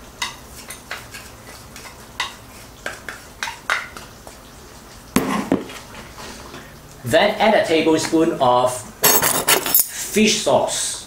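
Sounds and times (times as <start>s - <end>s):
stirring in metal pot: 0.2s - 6.6s.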